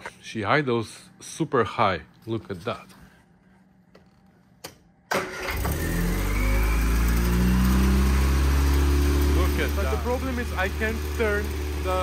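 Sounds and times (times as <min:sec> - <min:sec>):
car engine starting and idling high: 0:05.1 - 0:12.0.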